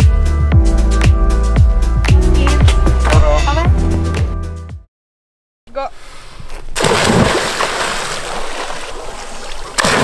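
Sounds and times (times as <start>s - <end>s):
water splashing from plunge: 6.8s - 10.0s.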